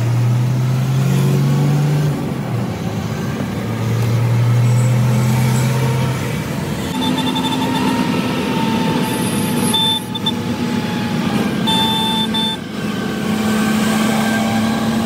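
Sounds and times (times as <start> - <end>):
truck engine and road noise: 0.0 - 15.0
short high-pitched tones: 6.9 - 8.0, 9.6 - 10.4, 11.6 - 12.6.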